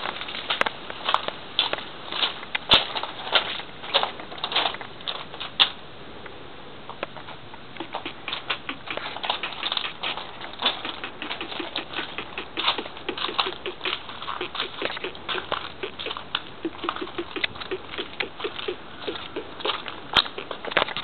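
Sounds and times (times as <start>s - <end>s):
footsteps on gravel: 7.8s - 21.0s.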